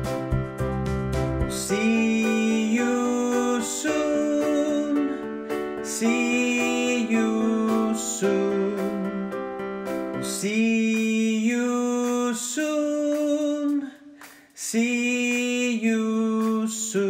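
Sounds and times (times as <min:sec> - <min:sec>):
person singing long notes: 0:01.6 - 0:09.4.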